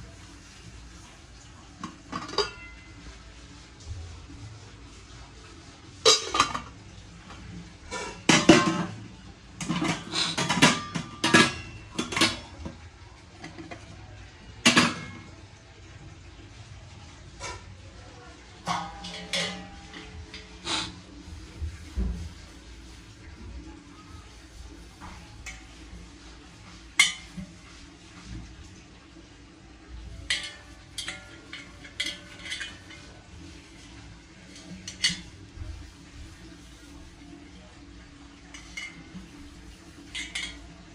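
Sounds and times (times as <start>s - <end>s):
metal utensils clanking: 1.7s - 3.1s, 6.0s - 12.8s, 14.6s - 15.4s, 18.6s - 21.2s, 26.9s - 27.7s, 29.9s - 36.2s, 38.3s - 40.9s
brass utensils clinking: 18.6s - 21.0s, 30.2s - 33.2s, 38.6s - 40.9s.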